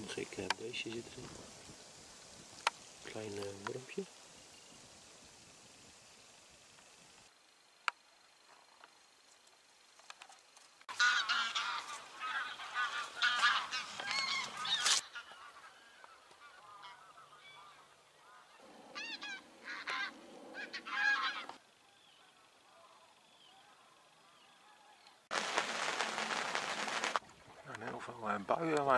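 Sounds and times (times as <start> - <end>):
geese honking in flight: 10.9 - 21.6.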